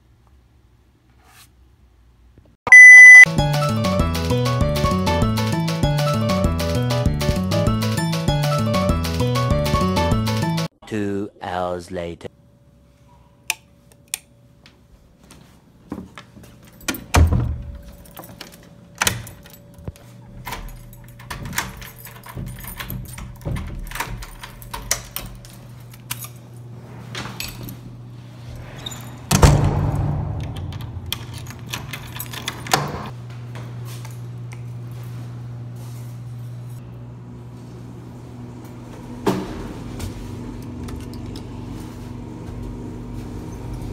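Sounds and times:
keys jangling: 17.8 - 26.5, 31.1 - 33.1.

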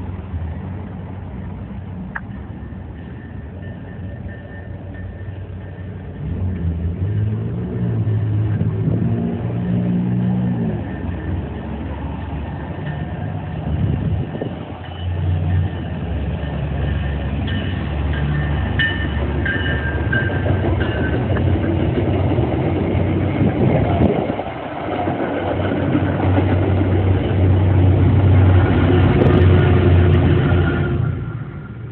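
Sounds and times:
diesel locomotive engine drone: 0.0 - 31.9
passenger train coaches rolling: 0.0 - 31.9
train wheels squealing: 2.3 - 6.3, 9.6 - 22.1, 28.4 - 31.9.

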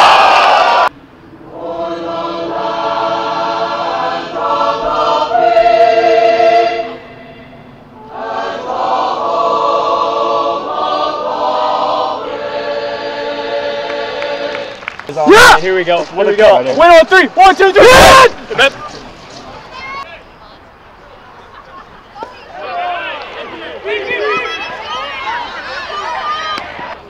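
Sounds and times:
choir singing an anthem: 0.0 - 14.9.

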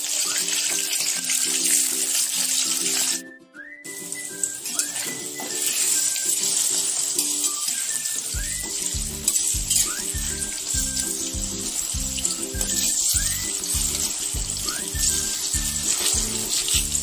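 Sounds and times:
tofu sizzling in oil: 0.0 - 3.3, 3.9 - 17.0
music with pulsing beat: 8.4 - 17.0.

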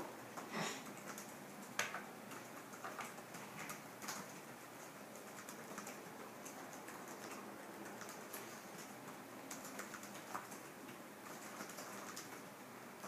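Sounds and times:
quiet room hiss: 0.0 - 13.0
small clicks and taps of note-taking: 1.0 - 4.3.

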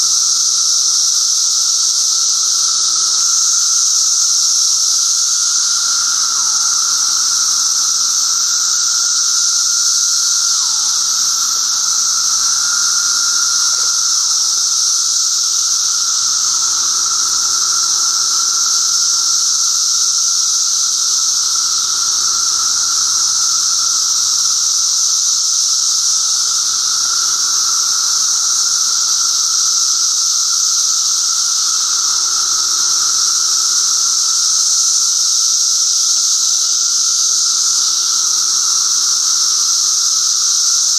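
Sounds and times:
high-pitched cicada whine: 0.0 - 40.9
low droning cicada call: 0.0 - 40.9.

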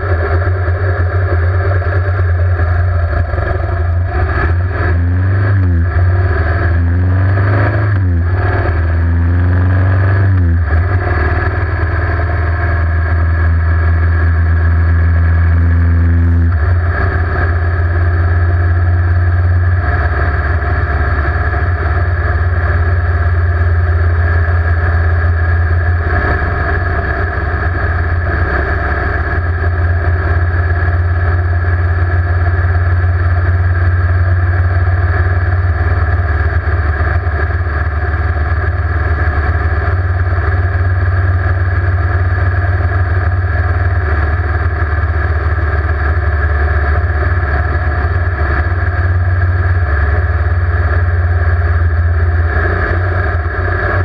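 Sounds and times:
motorcycle engine cruising: 0.0 - 54.0.

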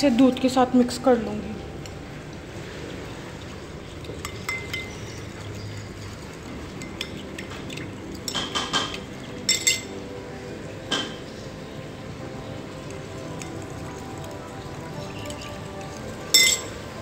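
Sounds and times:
metal spoon clinking on glass bowl: 4.2 - 5.1, 8.3 - 10.0, 16.3 - 16.8.

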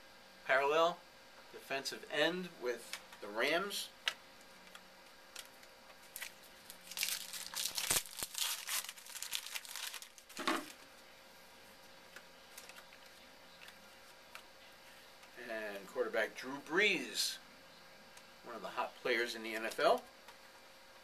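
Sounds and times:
foil wrapper crinkling and tearing: 5.3 - 10.8
cards being handled: 12.2 - 14.5.

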